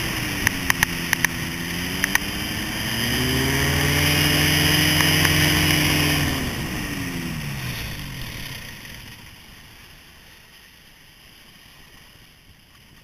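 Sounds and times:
ultralight trike engine running: 0.0s - 10.8s
faint wind: 0.0s - 13.0s
water noise: 0.0s - 13.0s.

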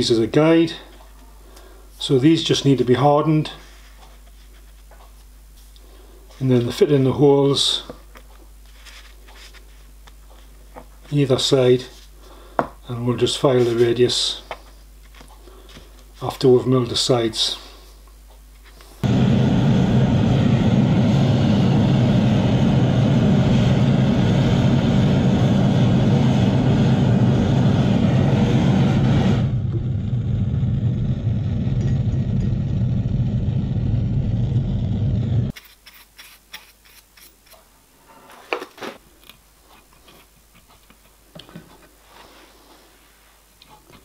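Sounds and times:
blowtorch flame hissing: 19.0s - 35.6s.

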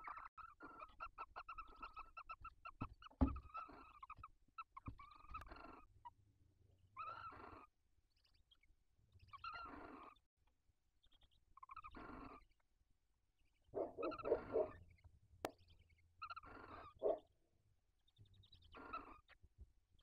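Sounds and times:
owl hissing snore calls: 13.8s - 14.8s.

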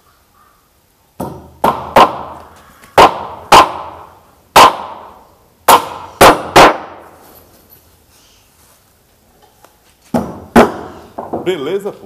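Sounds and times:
hammer driving nails into wood: 1.2s - 2.4s, 5.7s - 6.9s, 10.1s - 11.4s.

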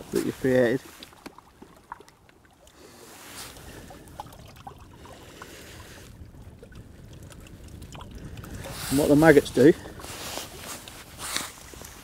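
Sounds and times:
small waves lapping: 0.0s - 12.0s
wind rumbling on microphone: 2.8s - 12.0s.

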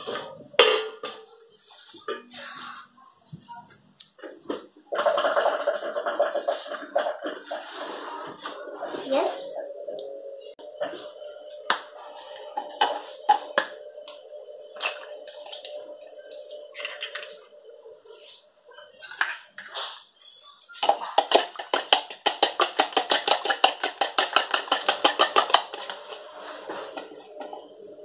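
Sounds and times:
eggs cracking into a bowl: 20.8s - 26.2s.

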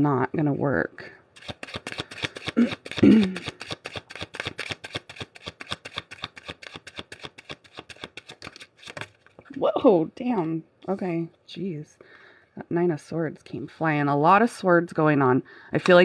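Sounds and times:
cards shuffling: 1.4s - 9.6s.

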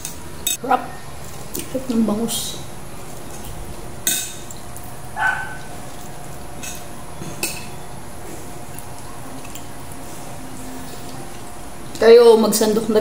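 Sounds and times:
spoon clinking against bowls: 3.3s - 6.0s, 6.6s - 8.0s.

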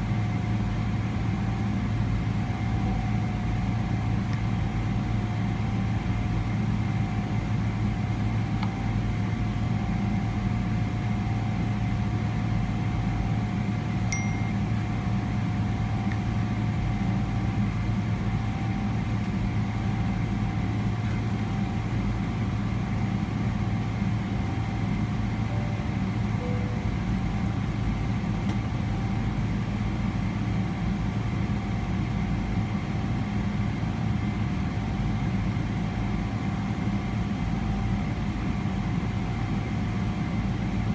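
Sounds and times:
two-note chime: 14.1s - 14.6s, 25.5s - 27.1s
airplane cabin hum: 14.1s - 34.4s.

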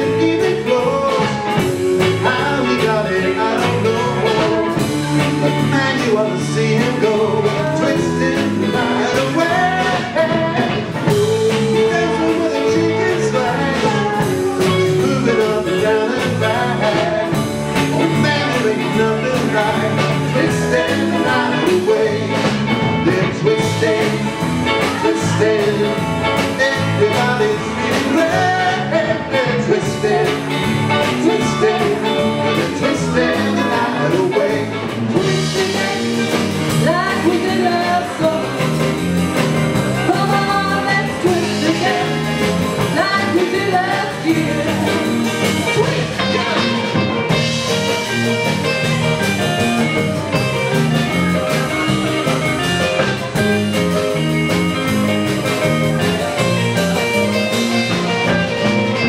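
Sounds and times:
drum kit: 0.0s - 59.0s
electric guitar: 0.0s - 59.0s
keyboard: 0.0s - 59.0s
woman singing: 35.2s - 38.7s, 40.0s - 46.9s.

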